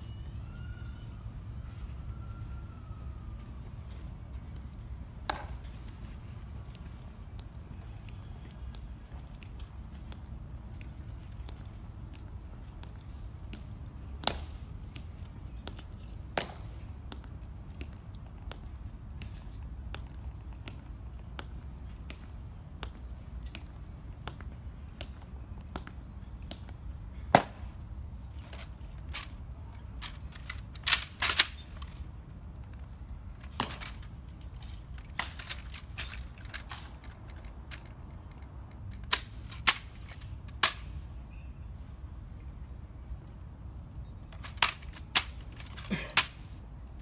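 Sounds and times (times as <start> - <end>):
footsteps on stone: 3.8 - 40.8
rifle bolt snaps and clacks: 30.0 - 32.0, 33.4 - 40.9, 44.3 - 46.4.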